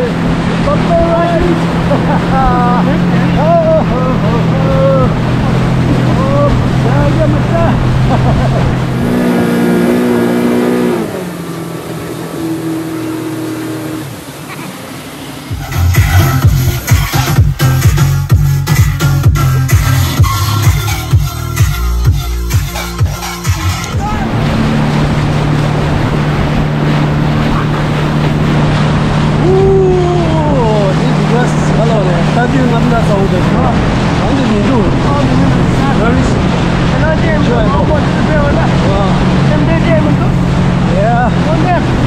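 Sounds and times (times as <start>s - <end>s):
engine running: 0.0s - 42.0s
loud steady rushing noise: 0.0s - 42.0s
person calling out: 23.9s - 24.4s, 29.4s - 30.7s.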